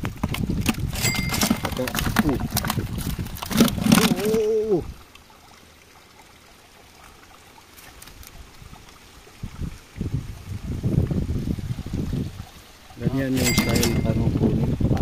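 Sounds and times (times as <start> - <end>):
water trickling: 0.0 - 15.0
handling sounds: 0.2 - 4.5, 13.3 - 14.2
person speaking: 3.8 - 4.9, 13.0 - 14.8.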